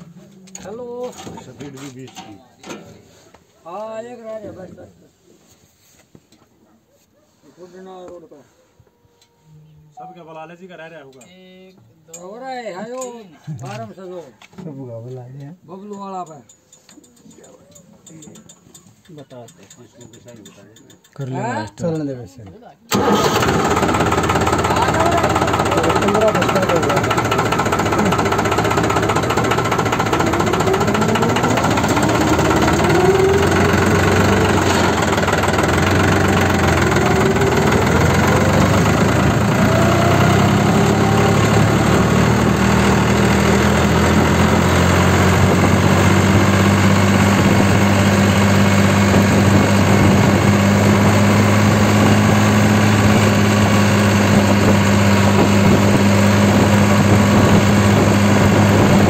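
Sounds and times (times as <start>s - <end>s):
tractor diesel engine running: 22.9s - 59.0s.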